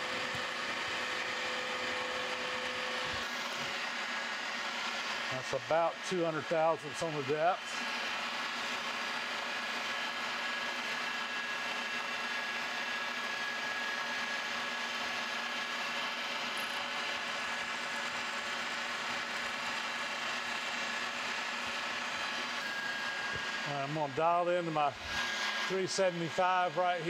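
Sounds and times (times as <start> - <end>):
milling machine humming and whining: 0.0 - 27.0.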